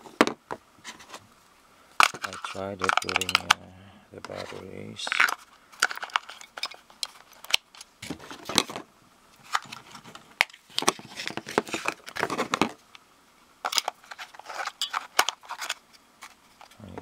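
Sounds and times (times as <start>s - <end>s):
batteries clicking into compartment: 2.0s - 3.6s
plastic wrapping rustling: 2.0s - 3.6s, 9.4s - 12.8s, 13.7s - 17.0s.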